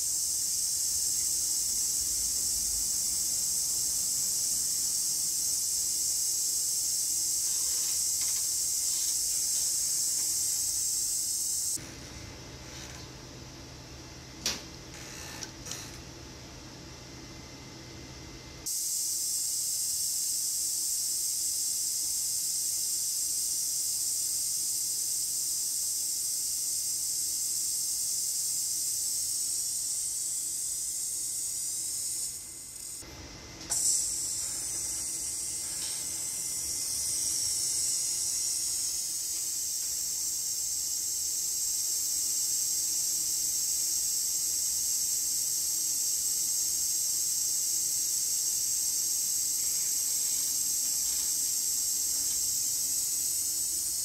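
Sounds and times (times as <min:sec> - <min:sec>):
high-pitched machinery hiss: 0:00.0 - 0:12.0, 0:18.6 - 0:54.0.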